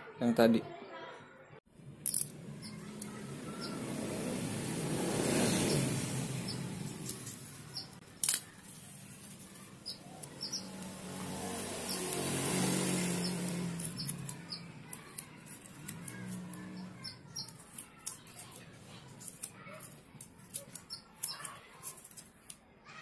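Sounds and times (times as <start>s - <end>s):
masking tape tearing: 6.9s - 22.6s
small clicks and crinkles: 8.0s - 10.4s, 17.4s - 22.7s.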